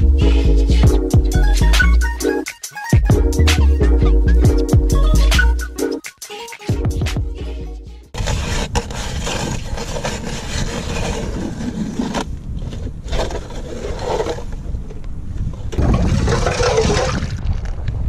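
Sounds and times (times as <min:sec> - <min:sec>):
hand auger grinding through ice: 0:08.2 - 0:14.6.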